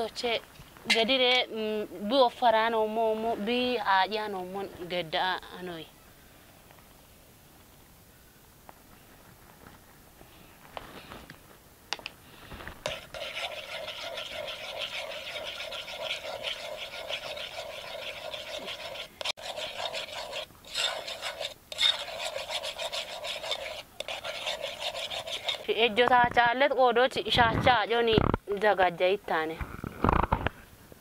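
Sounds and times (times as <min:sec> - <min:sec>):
spoon scraping metal pot: 0:00.9 - 0:01.5, 0:12.8 - 0:25.9.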